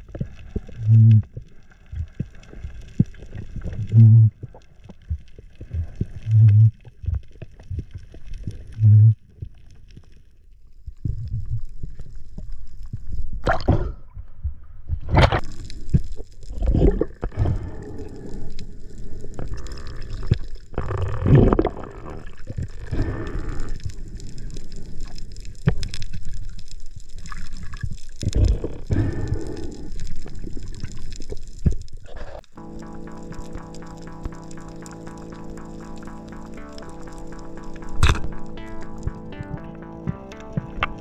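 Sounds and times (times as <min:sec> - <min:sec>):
water surging and gurgling: 0:15.4 - 0:41.0.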